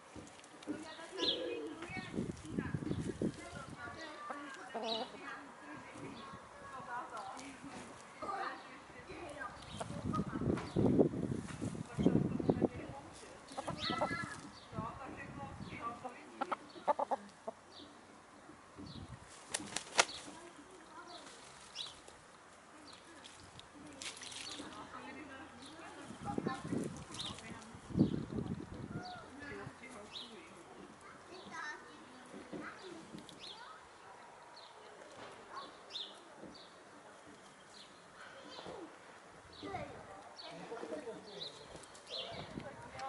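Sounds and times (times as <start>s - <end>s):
pecking and scratching at soil: 0.0s - 39.0s, 39.6s - 43.0s
hens clucking: 13.5s - 14.4s, 16.0s - 17.8s.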